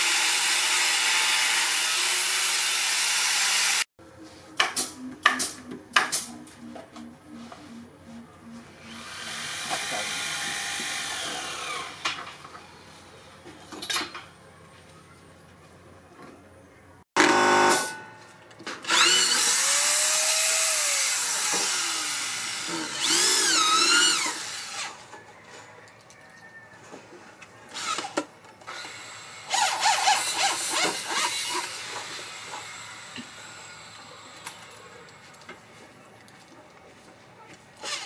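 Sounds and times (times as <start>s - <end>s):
electric drill boring into wood: 0.0s - 3.8s, 8.9s - 12.2s, 18.8s - 25.0s, 27.7s - 34.0s, 37.8s - 38.0s.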